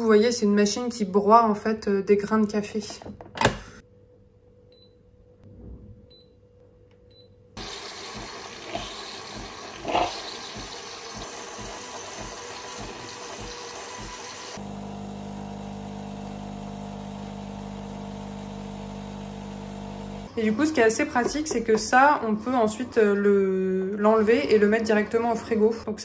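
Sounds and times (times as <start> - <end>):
coffee machine pump hissing: 7.6 - 20.3
steady motor hum: 7.6 - 20.3.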